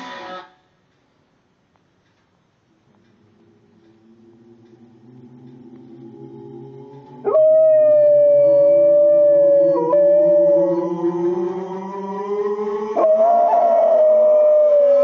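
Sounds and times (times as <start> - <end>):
dog howling: 6.4 - 11.1, 13.0 - 15.0.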